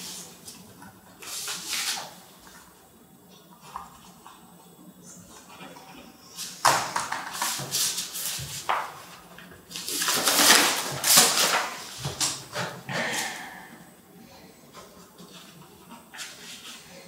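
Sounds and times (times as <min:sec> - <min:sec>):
paper rustling and crackling: 0:06.4 - 0:12.8.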